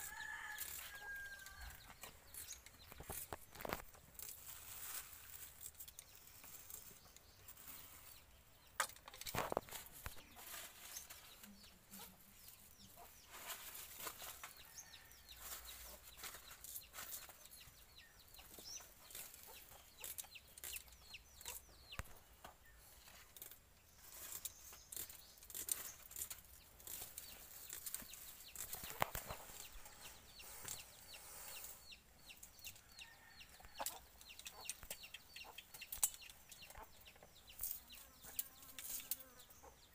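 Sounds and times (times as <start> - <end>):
crackle of plastic bag: 3.6 - 6.8
chickens clucking: 15.4 - 23.3, 26.5 - 38.7.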